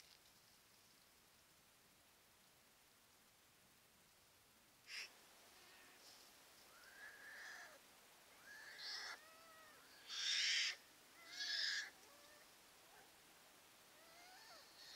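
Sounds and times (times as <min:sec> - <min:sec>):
bear cubs crying and squalling: 0:06.8 - 0:07.8, 0:08.4 - 0:12.5, 0:14.0 - 0:14.9.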